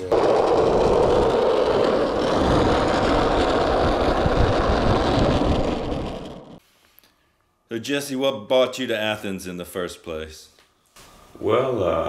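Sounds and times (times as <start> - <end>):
road traffic rumbling: 0.0 - 6.6.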